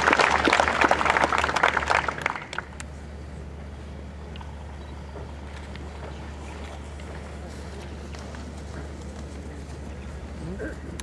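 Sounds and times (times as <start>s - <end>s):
congregation applauding: 0.0s - 2.8s
low steady hum: 0.0s - 11.0s.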